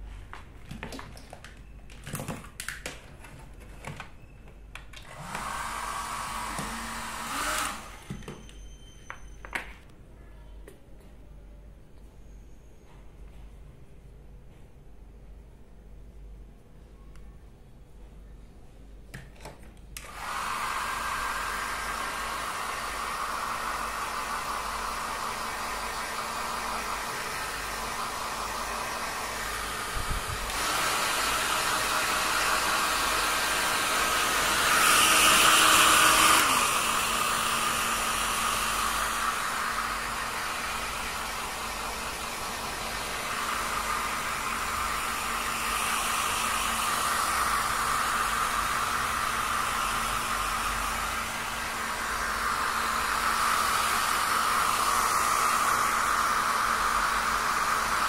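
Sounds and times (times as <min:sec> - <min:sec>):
hair dryer running: 0:05.0 - 0:08.4, 0:20.0 - 0:58.0.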